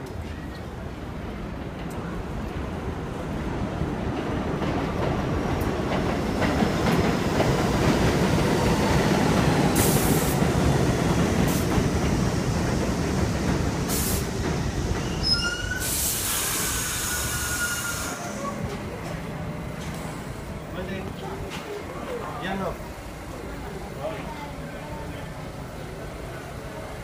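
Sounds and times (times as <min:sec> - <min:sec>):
train wheels rumbling on rails: 0:00.0 - 0:27.0
high wheel squeal: 0:15.0 - 0:18.6.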